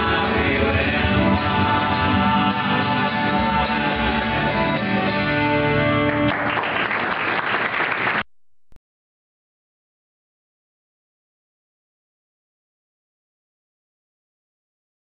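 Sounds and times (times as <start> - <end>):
audience applause: 6.0 - 8.3.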